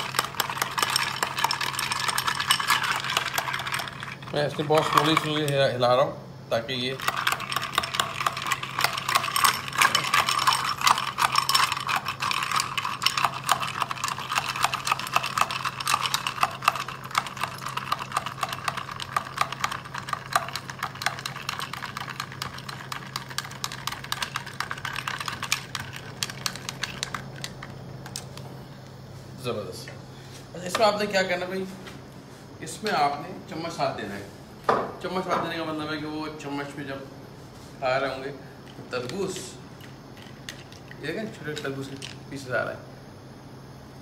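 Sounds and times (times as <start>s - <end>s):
liquid pouring: 0.0s - 5.4s, 6.9s - 27.6s
spoon and ice clinking in glass: 0.0s - 5.6s, 6.9s - 27.5s.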